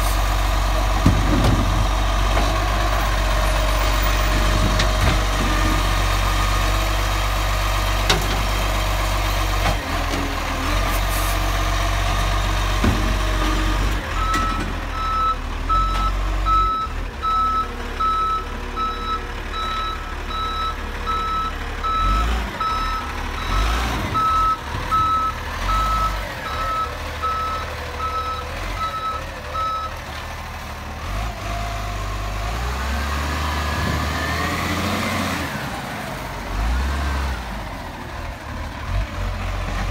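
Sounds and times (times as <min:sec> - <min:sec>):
diesel truck engine running: 0:00.0 - 0:39.9
reversing alarm beeps: 0:14.2 - 0:29.9.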